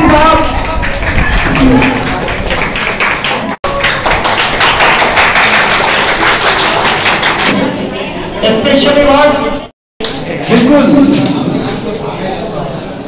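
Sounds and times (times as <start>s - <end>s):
small crowd applauding: 0.0s - 7.7s.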